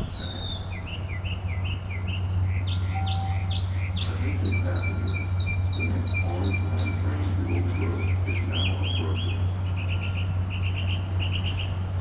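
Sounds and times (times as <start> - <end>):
songbirds chirping and whistling: 0.0 - 12.0
steady low hum: 0.0 - 12.0.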